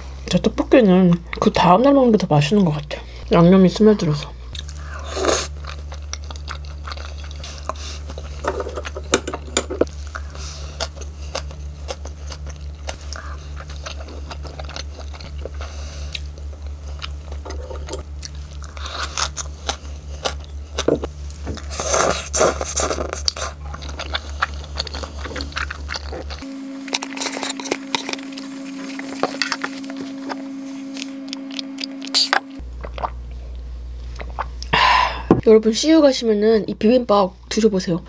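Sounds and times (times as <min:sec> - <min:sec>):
steady low hum: 0:00.0 - 0:38.0
close chewing and biting: 0:04.5 - 0:09.1, 0:09.8 - 0:34.7.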